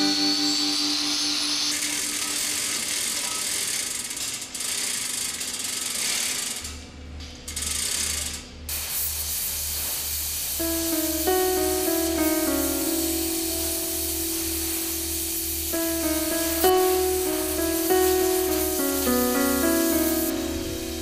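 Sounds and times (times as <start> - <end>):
power tools grinding metal: 0.0 - 6.8
slow low music beat: 10.6 - 21.0.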